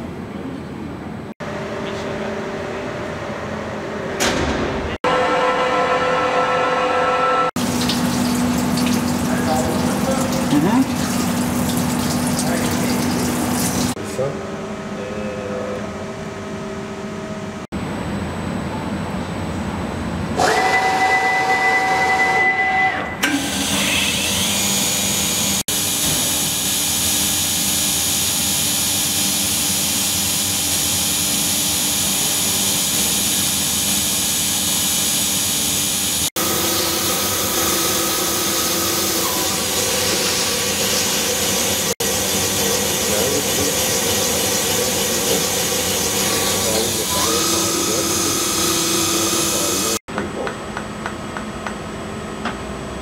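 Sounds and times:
grinding spindle running: 29.4 - 50.0.

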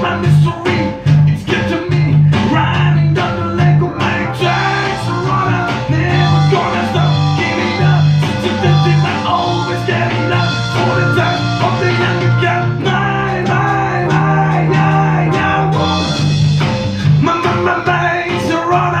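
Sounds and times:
man singing: 0.0 - 16.2, 17.1 - 19.0
acoustic guitar: 0.0 - 19.0
bass guitar: 0.0 - 19.0
electronic drum beat: 0.0 - 19.0.

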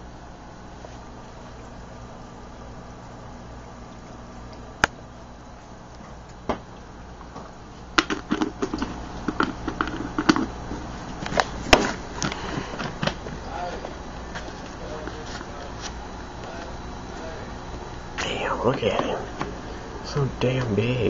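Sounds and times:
aquarium pump humming: 0.0 - 21.0.

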